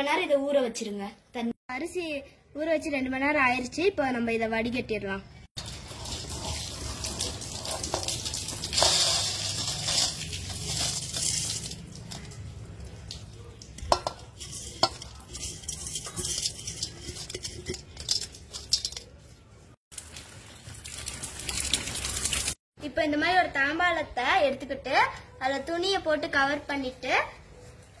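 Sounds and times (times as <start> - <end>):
wet rice shifted in colander: 5.6 - 12.3, 14.3 - 19.3
water draining through colander: 5.6 - 18.8
steel vessels clinking: 5.6 - 19.6.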